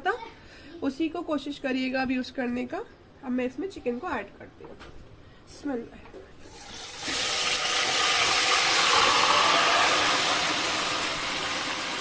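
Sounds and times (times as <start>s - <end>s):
hot oil sizzling: 6.5s - 12.0s.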